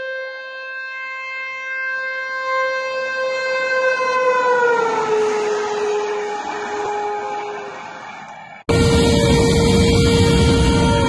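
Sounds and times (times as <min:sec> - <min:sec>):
rush of passing train: 0:05.2 - 0:11.0
locomotive horn blast: 0:05.3 - 0:07.9, 0:08.7 - 0:11.0.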